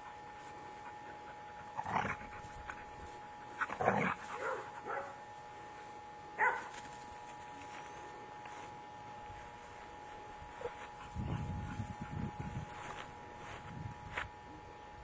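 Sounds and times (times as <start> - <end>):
dogs barking in short bursts: 3.6 - 5.3, 6.4 - 6.8.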